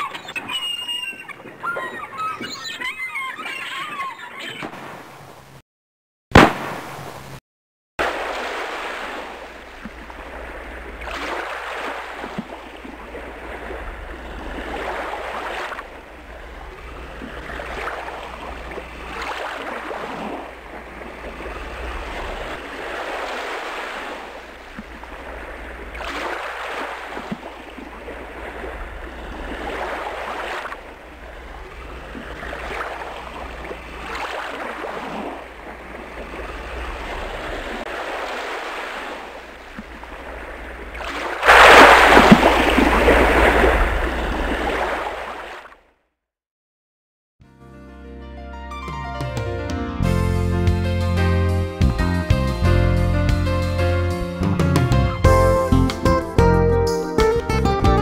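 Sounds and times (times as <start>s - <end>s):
water lapping against boat hull: 0.0s - 5.0s, 8.0s - 45.8s.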